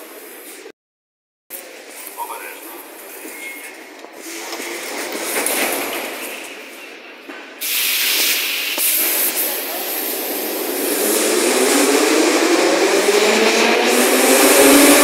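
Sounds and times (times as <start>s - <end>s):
compressed air hiss: 7.6s - 10.6s.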